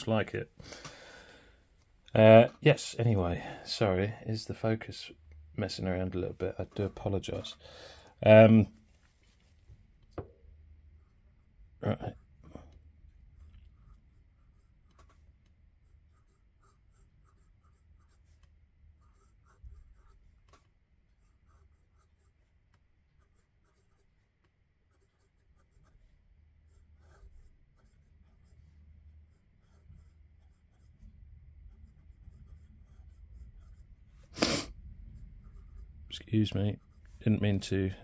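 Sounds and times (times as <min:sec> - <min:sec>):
pen nib scratching on paper: 0:11.0 - 0:37.6.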